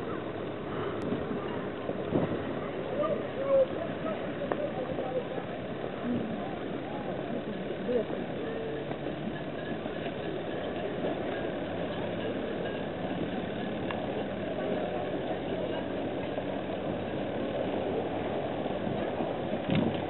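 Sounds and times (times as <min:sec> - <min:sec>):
engine idling: 0:00.0 - 0:20.0.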